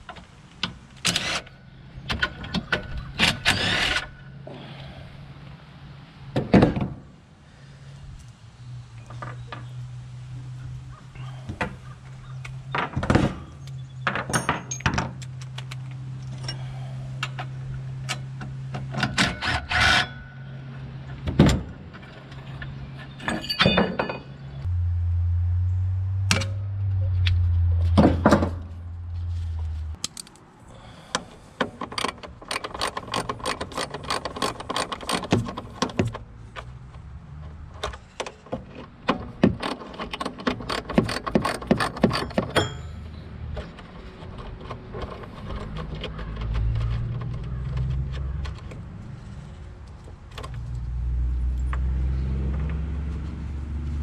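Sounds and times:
hand tools clanking on metal: 13.7 - 15.2, 22.0 - 24.7, 37.8 - 48.6
low steady hum: 23.3 - 30.0
ratchet wrench clicking: 32.0 - 35.4.

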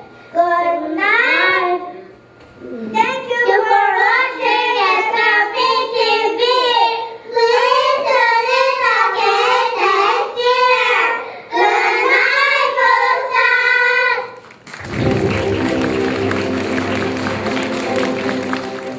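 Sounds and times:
young children singing: 3.1 - 14.4.

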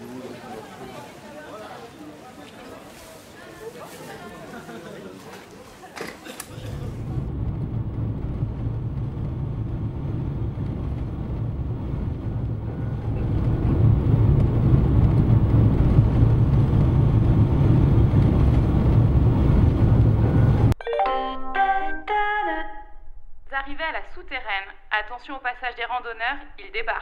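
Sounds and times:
steady low rumbling noise: 6.5 - 20.8.

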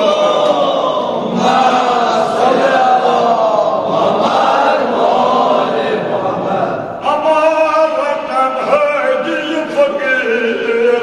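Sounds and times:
voices singing together: 0.0 - 7.0.

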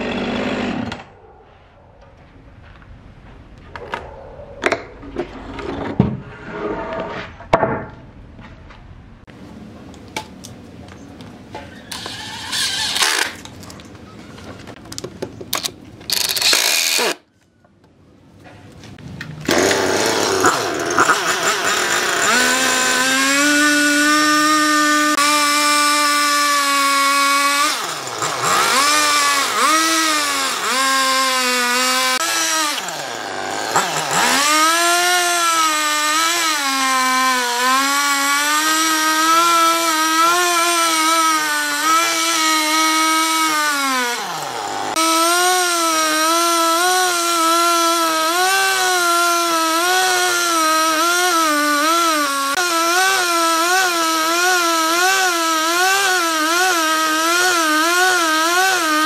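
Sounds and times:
chainsaw cutting wood: 0.0 - 1.1, 11.9 - 13.5, 15.6 - 17.2, 19.4 - 59.0.

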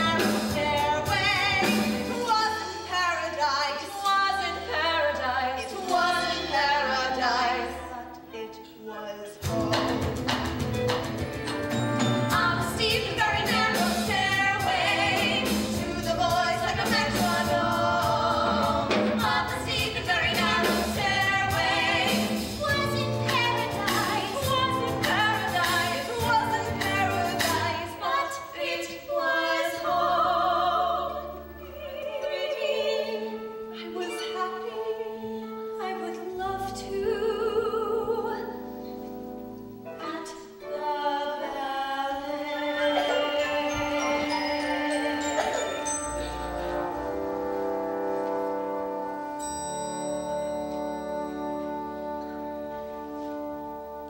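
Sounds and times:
women singing in harmony: 0.0 - 9.4, 12.3 - 38.9, 40.0 - 47.1
instrumental accompaniment: 0.0 - 54.0.

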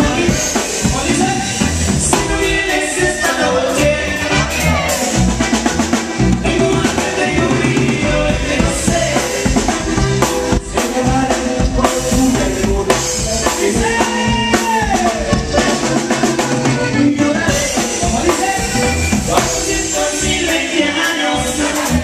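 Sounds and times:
drum kit beat: 0.0 - 22.0
live band playing instrumental: 0.0 - 22.0.

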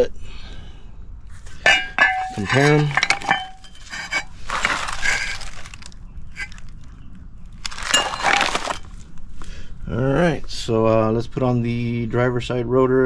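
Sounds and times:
metal rotor being set down: 1.6 - 5.3
plastic wrap and cardboard crinkling: 2.4 - 9.0.

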